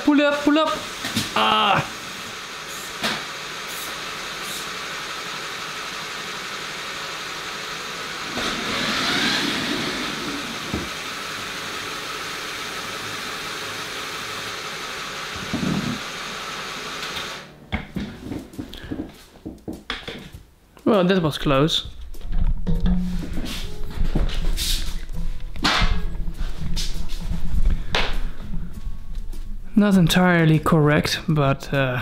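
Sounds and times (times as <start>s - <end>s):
electric motors and gears running: 0.0s - 18.5s.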